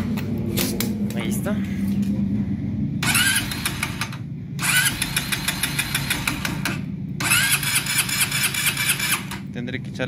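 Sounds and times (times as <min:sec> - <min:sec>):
electric starter whine: 0:03.0 - 0:09.6.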